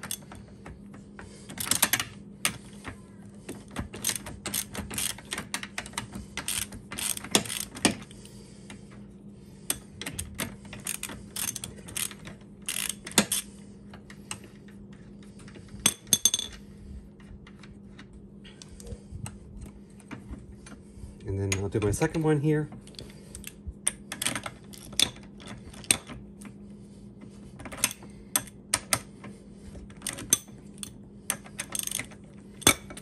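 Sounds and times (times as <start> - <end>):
faint steady hum: 0.0 - 33.0
wrench clicking on metal: 6.4 - 7.9, 10.9 - 13.5.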